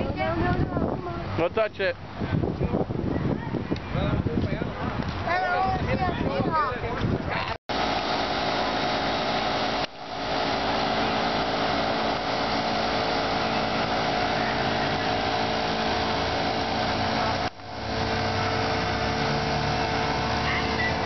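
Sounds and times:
engine droning whine: 7.7 - 21.0.

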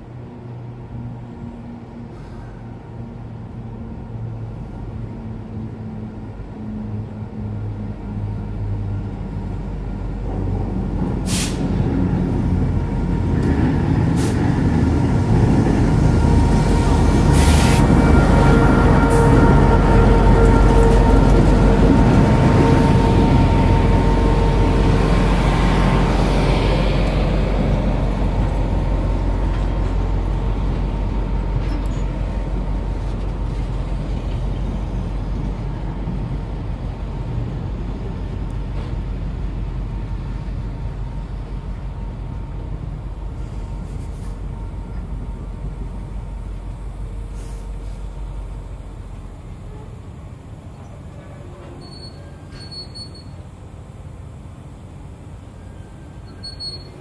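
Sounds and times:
train rumbling over steel bridge: 0.0 - 57.0
brake squeal: 50.7 - 53.5, 55.5 - 57.0.

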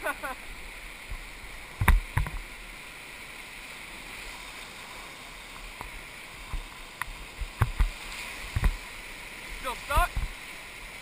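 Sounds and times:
whitewater rapids rushing: 0.0 - 11.0.

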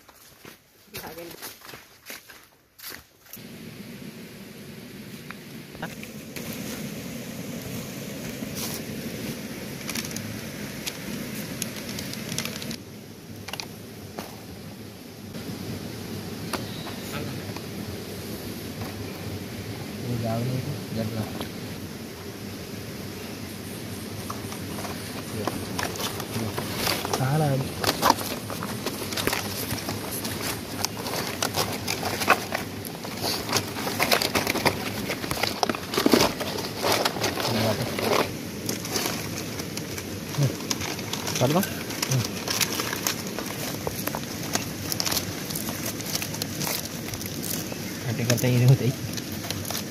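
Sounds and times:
spice packet rustling: 9.7 - 12.8, 24.2 - 49.9.

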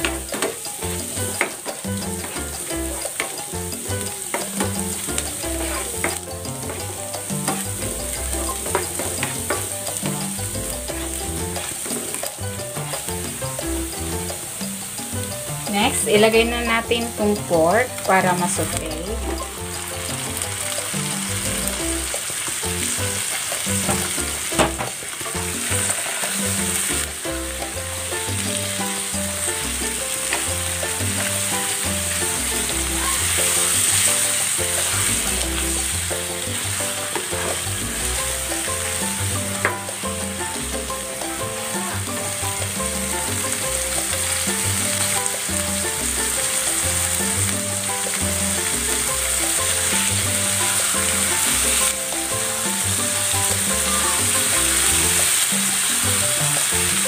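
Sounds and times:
meat sizzling in hot oil: 0.0 - 57.0.

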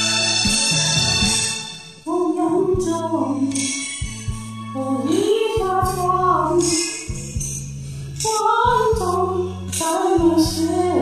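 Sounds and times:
woman singing a slow ballad: 2.1 - 3.9, 4.8 - 7.2, 8.2 - 11.0
karaoke backing track with bass: 2.1 - 11.0.

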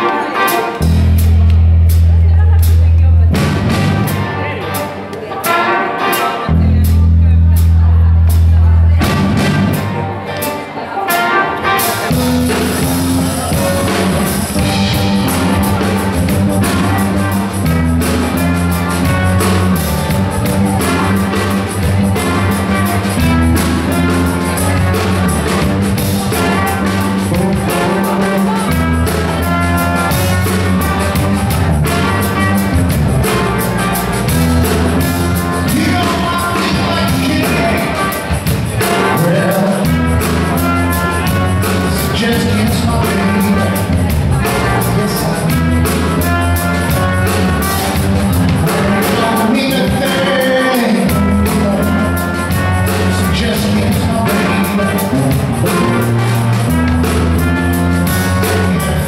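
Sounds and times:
trumpet lead: 0.0 - 1.5, 3.3 - 8.2, 8.9 - 59.0
live funk band playing: 0.0 - 59.0.

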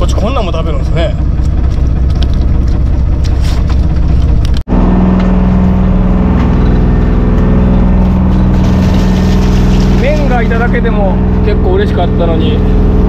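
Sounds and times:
boat engine running: 0.0 - 13.0.

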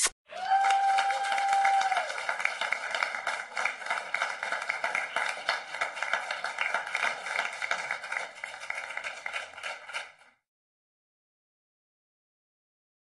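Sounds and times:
crowd applause: 0.3 - 10.4.

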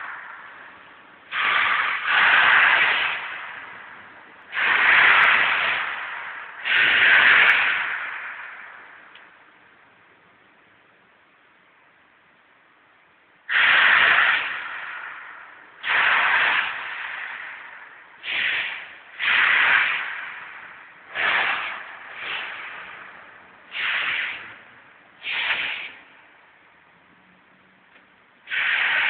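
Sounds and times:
sharp hisses of air: 0.0 - 9.0, 13.5 - 26.2, 28.4 - 29.0.

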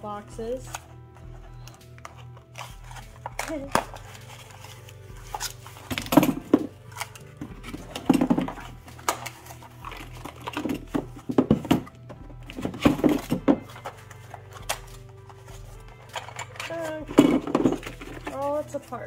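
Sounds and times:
cardboard rustling and scraping: 2.0 - 18.7
plastic parts knocking and clicking: 5.3 - 18.4.

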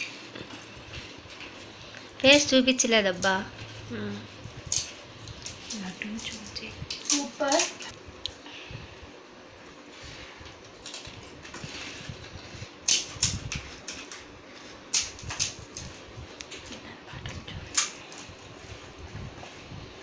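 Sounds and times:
crisp shells cracking: 10.6 - 11.6.

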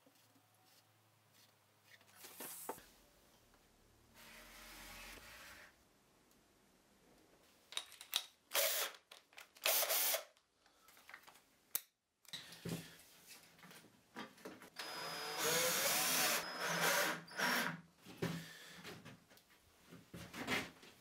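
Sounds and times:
cordless drill running: 8.6 - 9.0, 9.6 - 10.3, 14.8 - 17.7.

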